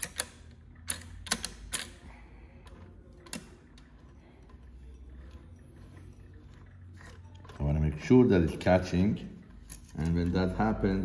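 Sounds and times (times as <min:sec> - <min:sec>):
sharp clicks of sewing machine parts: 0:00.0 - 0:02.1.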